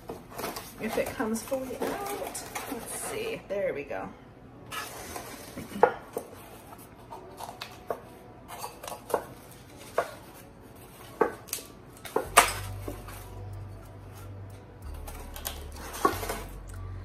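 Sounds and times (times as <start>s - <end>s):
cardboard and paper rustling: 0.0s - 3.4s.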